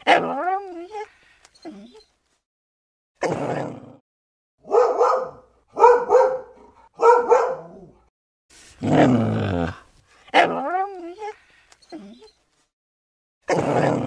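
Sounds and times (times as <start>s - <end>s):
dog barking: 4.6s - 8.0s.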